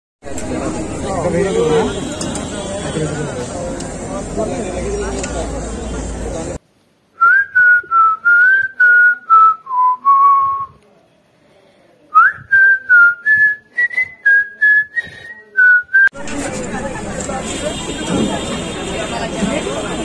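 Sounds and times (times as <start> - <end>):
whistled tune: 7.2 - 10.8, 12.2 - 16.1.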